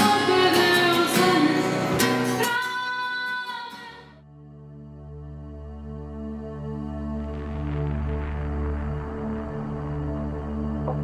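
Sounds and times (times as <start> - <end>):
ambient music low sustained tones: 4.2 - 11.0.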